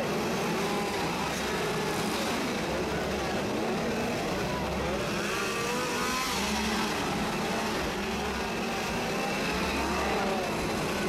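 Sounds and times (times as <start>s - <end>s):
chainsaw engines revving: 0.0s - 11.0s
crowd noise: 0.0s - 11.0s.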